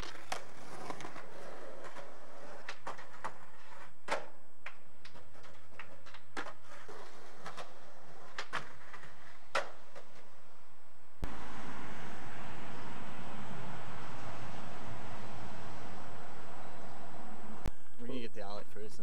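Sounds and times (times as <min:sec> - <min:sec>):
skateboard clacks: 0:00.0 - 0:10.4
skateboard grinding on ledge: 0:00.0 - 0:10.4
skateboard wheels rolling on concrete: 0:00.0 - 0:17.7.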